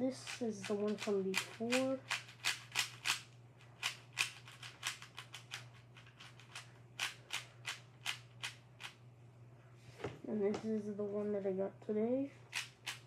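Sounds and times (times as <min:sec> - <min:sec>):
speed cube clicking: 0:00.2 - 0:09.0, 0:12.5 - 0:13.0.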